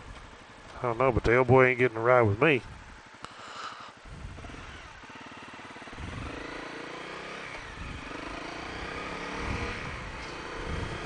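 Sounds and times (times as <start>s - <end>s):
motorcycle engine accelerating: 4.0s - 11.0s.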